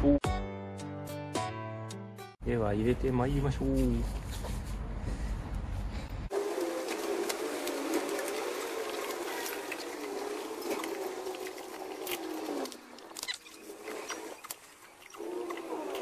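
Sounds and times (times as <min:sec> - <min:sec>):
wavering hum: 0:05.9 - 0:16.0.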